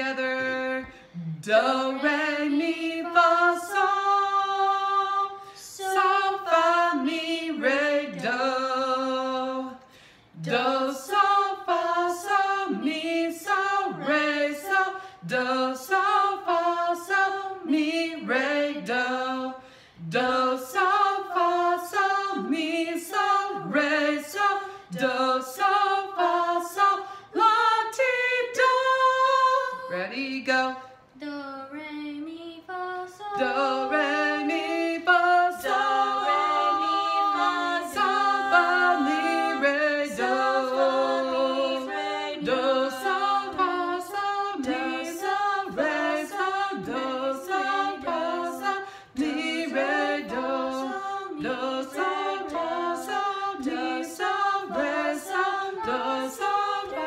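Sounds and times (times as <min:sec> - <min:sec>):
woman and children singing scales: 0:00.0 - 0:09.7, 0:20.1 - 0:47.9.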